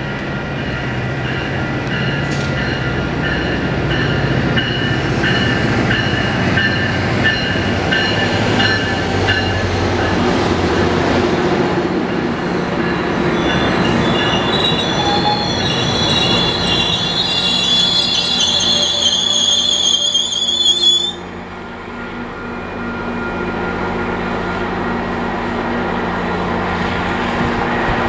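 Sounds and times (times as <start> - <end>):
train rumbling past: 0.0 - 28.0
high-pitched wheel squeal: 13.3 - 21.3.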